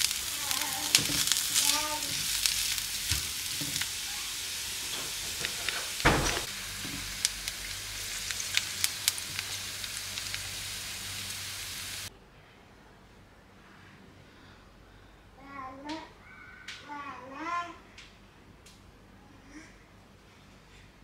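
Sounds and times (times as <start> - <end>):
oil popping and crackling: 0.0 - 12.1
onion sizzling in frying pan: 0.0 - 12.1
loud knock: 6.0 - 6.5.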